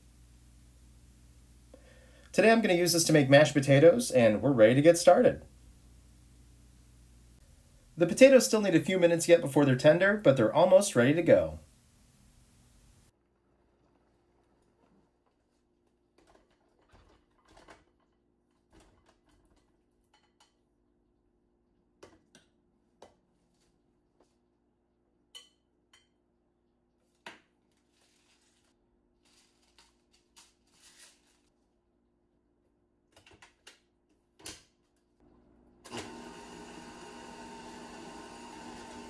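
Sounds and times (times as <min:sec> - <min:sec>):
low steady hum: 0:00.0 - 0:02.4, 0:03.2 - 0:08.8.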